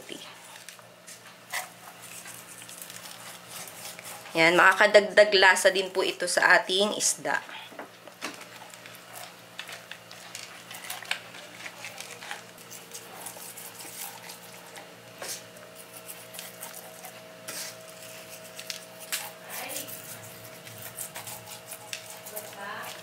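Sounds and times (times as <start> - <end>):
hands rubbing salt into fish: 1.0 - 4.4, 9.0 - 23.0.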